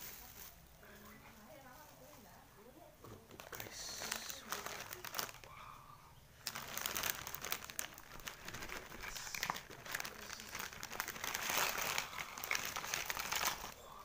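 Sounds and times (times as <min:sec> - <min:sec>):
plastic bag crinkling: 0:03.0 - 0:05.6, 0:06.3 - 0:13.8.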